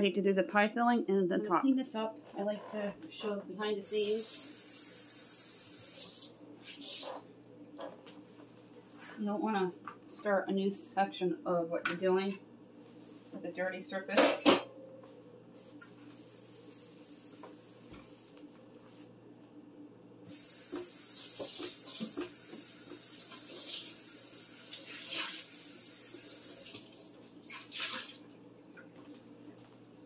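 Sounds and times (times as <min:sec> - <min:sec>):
tap running with water splashing: 0:20.3 - 0:28.9.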